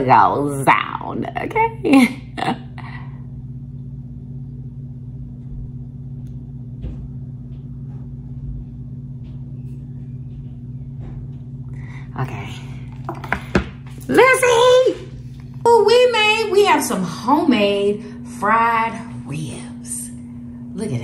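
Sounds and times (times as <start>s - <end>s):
low machine hum: 0.0s - 21.0s.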